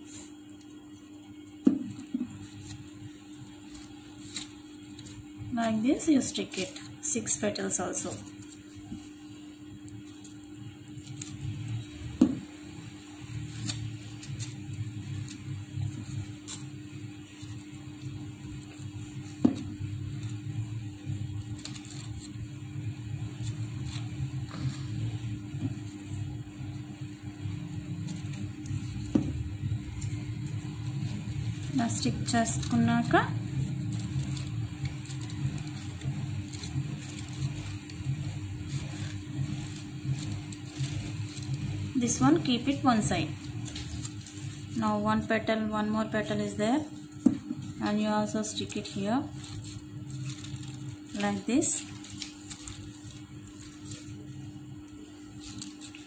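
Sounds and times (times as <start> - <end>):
steady low hum: 0.0 - 56.0
paper ticks and rustles: 48.6 - 56.0.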